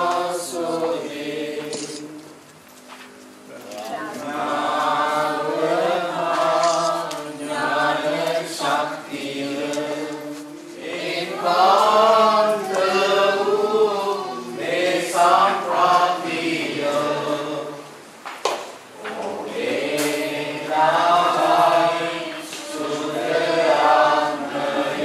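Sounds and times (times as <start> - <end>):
choir singing a hymn: 0.0 - 2.6, 3.9 - 18.2, 19.0 - 25.0.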